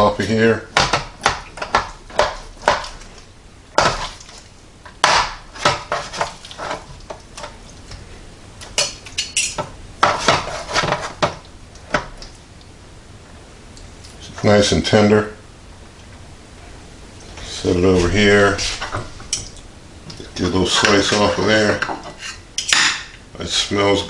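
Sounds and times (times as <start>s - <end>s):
cutlery scraping metal pan: 5.6s - 7.5s, 8.8s - 11.3s, 20.7s - 23.1s.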